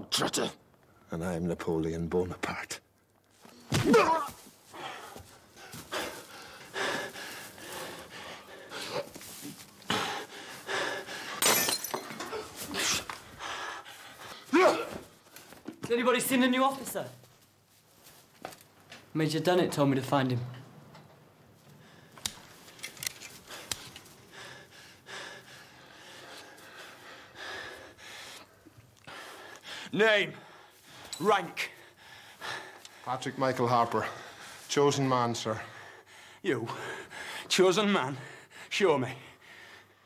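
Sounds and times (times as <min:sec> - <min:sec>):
man panting and gasping: 0:04.3 - 0:15.6, 0:23.4 - 0:33.2, 0:33.9 - 0:34.7, 0:35.5 - 0:40.0.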